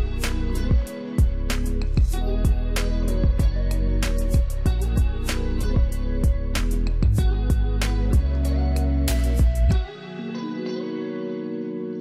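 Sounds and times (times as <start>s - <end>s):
low kick drum: 0.0s - 8.6s, 9.2s - 9.9s.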